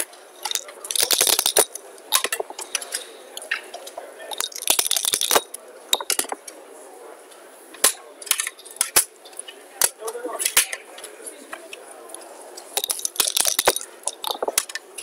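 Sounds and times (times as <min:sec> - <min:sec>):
checkers clicking on board: 0:00.4 - 0:02.5, 0:04.3 - 0:06.3, 0:12.8 - 0:14.8
dice rattling and rolling: 0:00.4 - 0:02.5, 0:04.3 - 0:06.4, 0:12.8 - 0:14.8.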